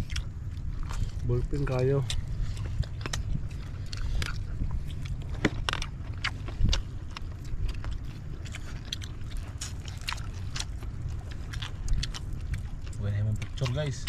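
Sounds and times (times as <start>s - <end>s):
steady low rumble: 0.0s - 14.0s
wet chewing and lip smacks: 0.0s - 14.0s.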